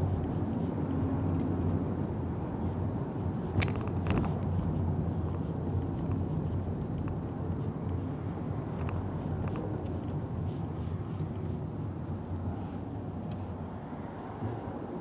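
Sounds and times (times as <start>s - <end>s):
car engine and tyres rumbling: 0.0s - 15.0s
sharp click: 3.6s - 4.2s.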